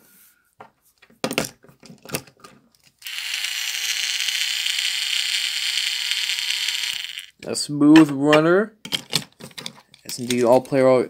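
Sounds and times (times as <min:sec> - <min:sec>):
toy train motor whirring: 0:03.0 - 0:07.4.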